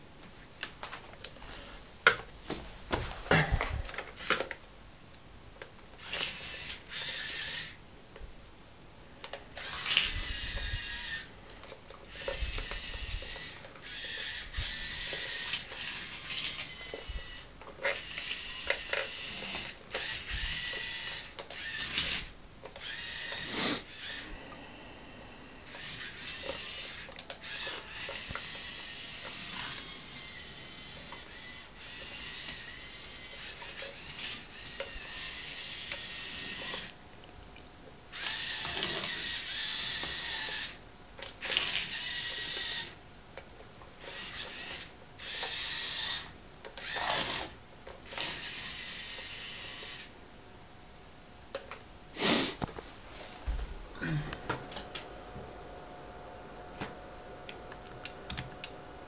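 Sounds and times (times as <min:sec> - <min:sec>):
small electric motors whirring: 0:06.0 - 0:07.8, 0:09.5 - 0:11.3, 0:12.1 - 0:24.4, 0:25.6 - 0:37.0, 0:38.1 - 0:40.8, 0:41.4 - 0:43.0, 0:44.0 - 0:50.1.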